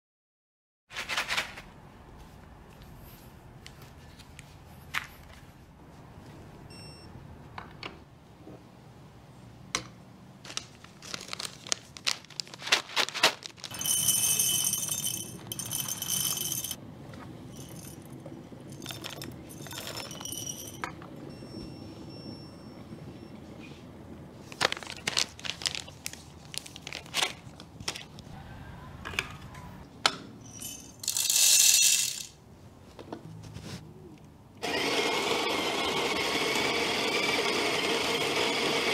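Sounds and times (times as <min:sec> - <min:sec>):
paper bag crinkling: 0:10.4 - 0:15.9, 0:24.4 - 0:28.2
coffee beans pouring into hopper: 0:13.1 - 0:16.8, 0:30.6 - 0:32.3
coffee beans pouring into bowl: 0:13.4 - 0:16.8, 0:18.7 - 0:20.8, 0:30.6 - 0:32.3.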